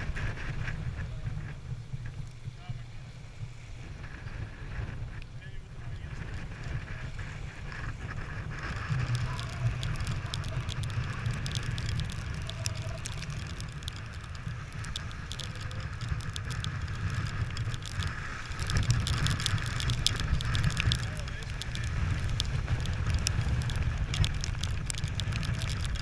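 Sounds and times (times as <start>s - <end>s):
water rushing along hull: 0.0s - 26.0s
wind buffeting microphone: 0.0s - 26.0s
sharp ticks: 7.6s - 26.0s.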